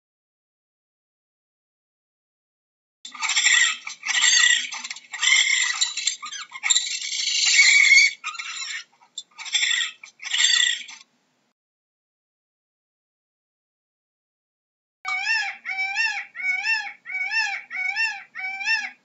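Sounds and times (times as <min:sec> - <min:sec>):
raccoon chittering and squealing: 0:03.1 - 0:11.0, 0:15.1 - 0:19.0.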